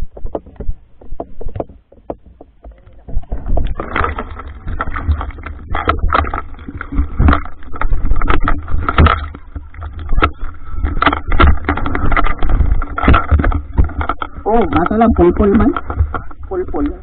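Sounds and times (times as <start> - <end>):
water splashing and sloshing: 0.0 - 17.0
muffled low rumble: 2.6 - 17.0.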